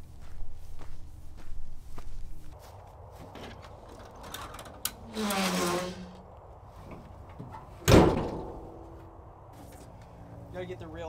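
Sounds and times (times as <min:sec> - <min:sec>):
hatch creaking open: 0:04.1 - 0:06.3
loud metal clunk: 0:07.8 - 0:08.8.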